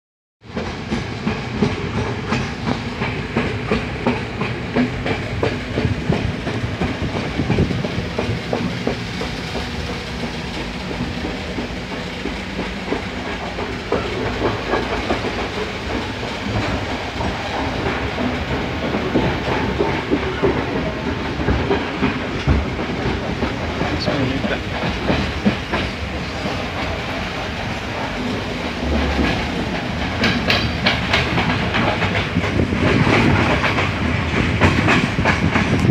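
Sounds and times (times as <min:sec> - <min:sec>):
train carriage rumble: 0:00.4 - 0:35.9
wheels clattering on rails: 0:00.5 - 0:35.9.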